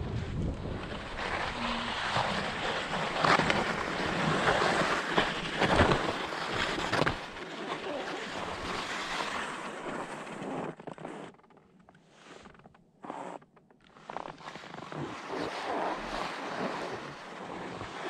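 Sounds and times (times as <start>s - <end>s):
wind rushing on microphone: 0.0s - 2.9s
skis scraping over snow: 0.0s - 11.4s, 12.0s - 18.0s.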